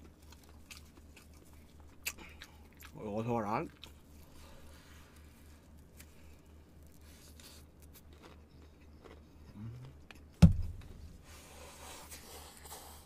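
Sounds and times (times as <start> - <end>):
chewing with mouth clicks: 0.0 - 4.4, 5.2 - 10.4
loud low thump: 10.4 - 10.9.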